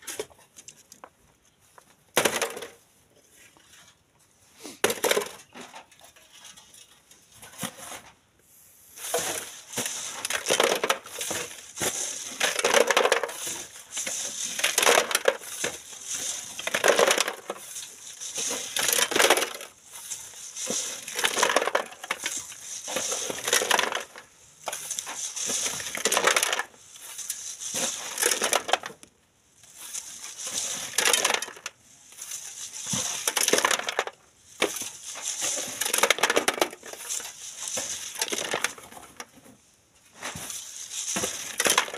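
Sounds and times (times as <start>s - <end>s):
hoe scraping into sand: 8.9s - 28.2s
sand rattling in wire sieve: 8.9s - 39.3s, 40.2s - 41.9s.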